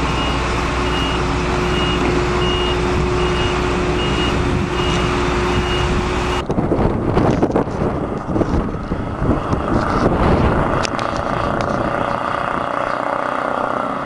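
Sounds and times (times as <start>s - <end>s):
wind buffeting microphone: 0.0s - 13.2s
diesel engine running: 0.0s - 14.0s
reversing alarm beeps: 0.1s - 6.4s.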